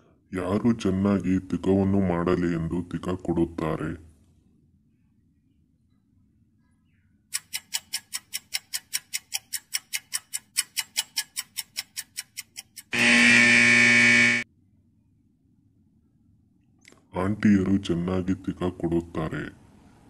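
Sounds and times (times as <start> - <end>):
rapid clock ticks: 7.3 - 13.0
loud buzzer: 12.9 - 14.5.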